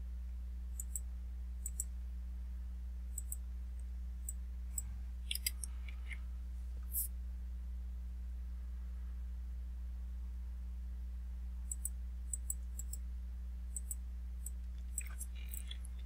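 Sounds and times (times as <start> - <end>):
low electrical hum: 0.0 - 16.0
computer mouse clicking: 0.8 - 1.0.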